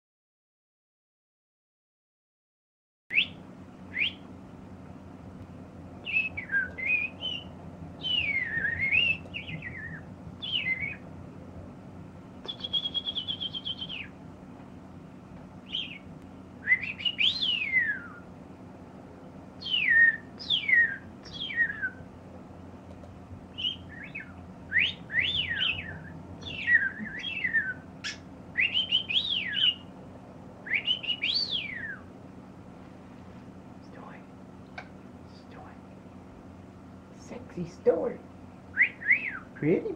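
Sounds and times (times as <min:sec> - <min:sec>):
steady low hum: 0:03.1 - 0:39.9
budgie chirping and warbling: 0:06.1 - 0:11.0, 0:15.7 - 0:16.1, 0:23.6 - 0:29.9.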